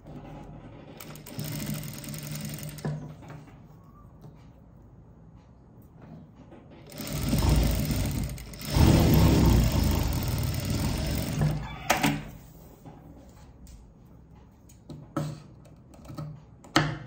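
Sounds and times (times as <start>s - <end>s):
industrial sewing machine stitching: 0.3s - 3.0s, 6.7s - 12.3s.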